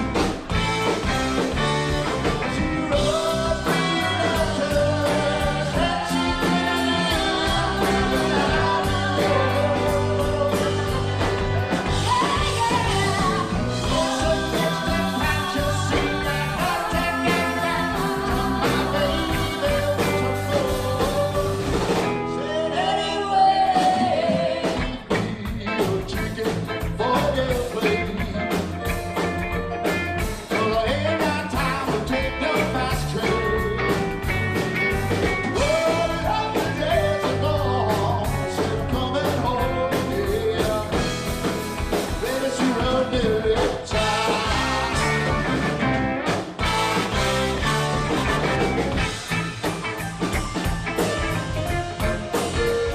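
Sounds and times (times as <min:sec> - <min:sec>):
drums and cymbals: 0:00.0 - 0:22.4, 0:23.7 - 0:52.9
electric bass: 0:00.0 - 0:52.9
keyboard: 0:00.0 - 0:52.9
sliding melody line: 0:00.6 - 0:24.6, 0:43.9 - 0:52.9
person singing: 0:02.7 - 0:29.3, 0:30.5 - 0:34.0, 0:35.5 - 0:41.2, 0:42.2 - 0:45.6.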